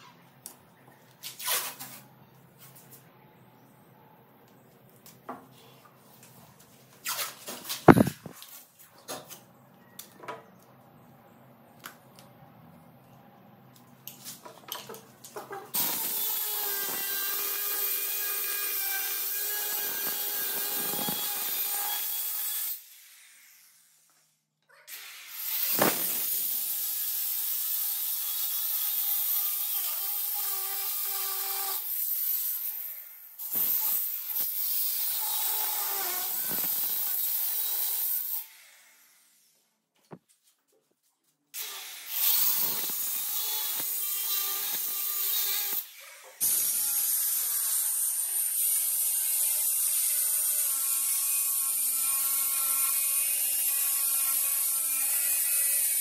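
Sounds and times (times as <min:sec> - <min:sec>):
electric cutter cutting stone: 0:07.9 - 0:08.1, 0:15.7 - 0:22.9, 0:25.4 - 0:32.1, 0:33.5 - 0:38.5, 0:41.6 - 0:56.0.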